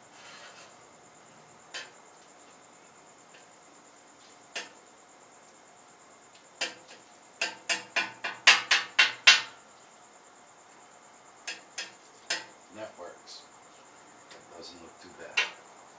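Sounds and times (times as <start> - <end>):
metal spatula tapping on griddle: 1.7 - 2.0, 4.5 - 4.8, 6.6 - 9.6, 11.4 - 12.6, 15.3 - 15.6.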